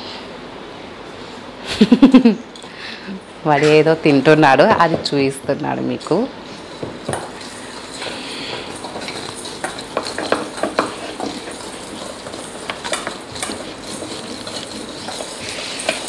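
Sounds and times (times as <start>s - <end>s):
steady hiss: 5.9s - 16.0s.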